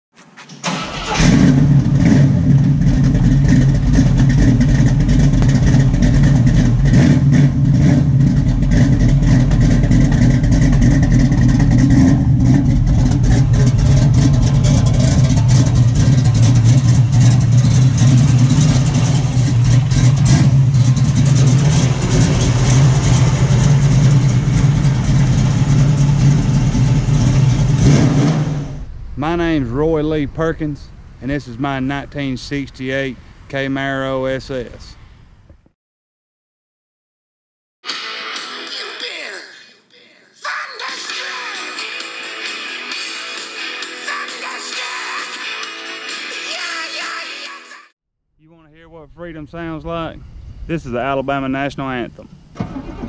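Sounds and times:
car engine running: 1.2s - 31.3s.

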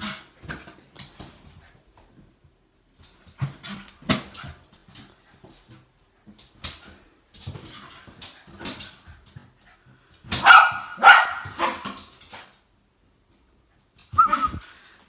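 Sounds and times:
dog barking: 10.4s - 11.8s.

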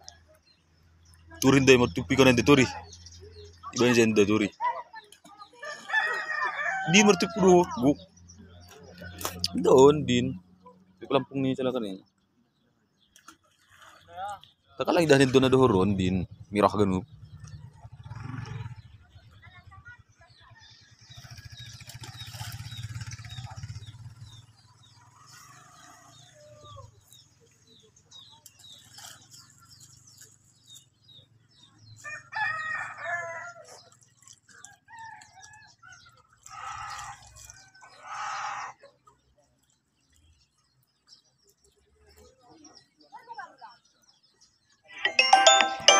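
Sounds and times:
small birds chirping: 0.0s - 45.6s
rooster crowing: 5.6s - 7.4s.

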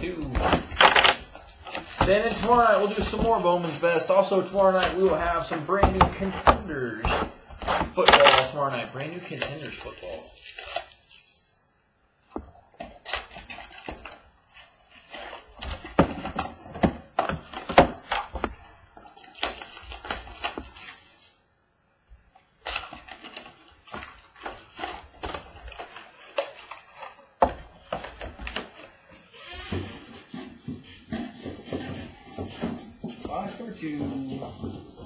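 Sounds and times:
card packs clicking and rustling: 0.0s - 5.6s
cardboard box opening: 0.0s - 11.5s, 12.8s - 21.3s, 22.6s - 35.0s.

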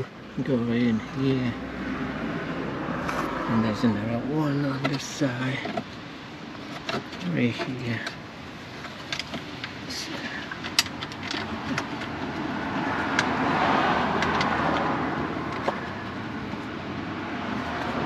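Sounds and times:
passing vehicle: 0.0s - 6.4s, 9.9s - 18.0s.

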